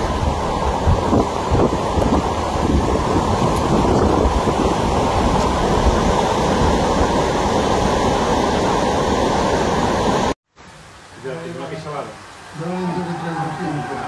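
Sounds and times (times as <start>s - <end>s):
wind buffeting microphone: 0.0s - 10.3s
floodwater rushing: 0.0s - 14.0s.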